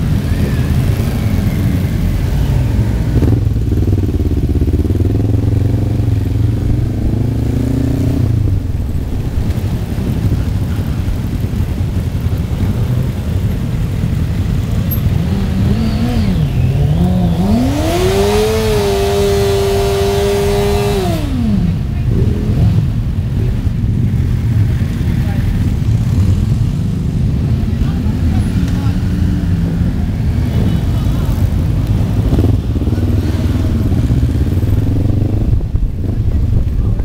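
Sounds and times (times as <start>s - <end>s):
motorcycle revving high: 0.0s - 10.4s, 14.1s - 23.0s
motorcycles engine rumble: 0.0s - 37.0s.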